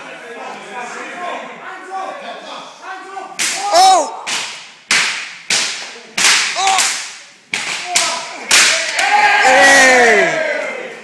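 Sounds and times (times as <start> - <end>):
loud shouts and yells: 3.0 - 4.3, 7.8 - 11.0.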